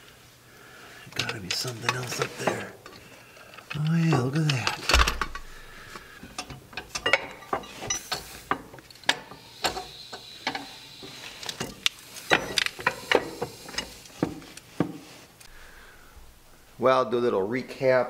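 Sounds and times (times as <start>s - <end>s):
metal clinks and knocks of tools: 6.2s - 14.7s.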